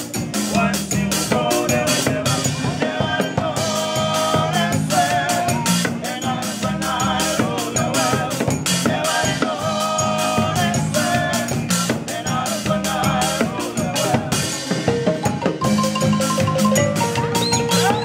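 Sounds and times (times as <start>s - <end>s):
men singing together: 0.0s - 15.4s
marimbas playing rhythmic groove: 0.0s - 18.0s
triangle ringing: 15.2s - 18.0s.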